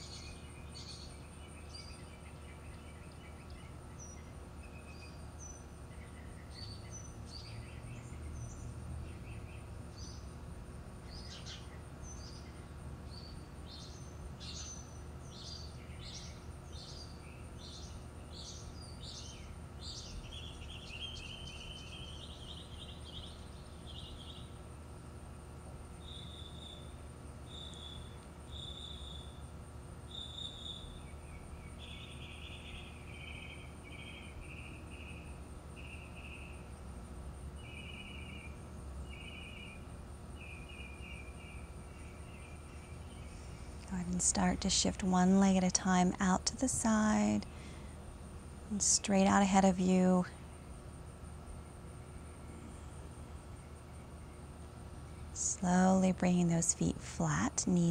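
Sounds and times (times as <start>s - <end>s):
birds singing and chirping: 0.0s - 10.3s, 11.1s - 24.5s, 30.1s - 36.6s, 37.6s - 47.7s
high insect trill: 0.0s - 57.9s
low background rumble: 41.0s - 57.9s.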